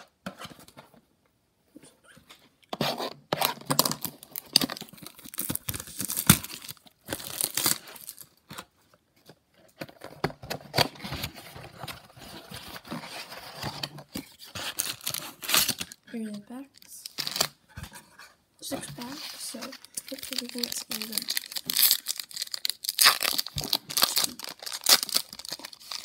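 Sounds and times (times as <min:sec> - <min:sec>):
packaging tearing and crinkling: 0:03.3 - 0:08.4, 0:14.5 - 0:16.0, 0:17.0 - 0:17.6, 0:19.0 - 0:26.0.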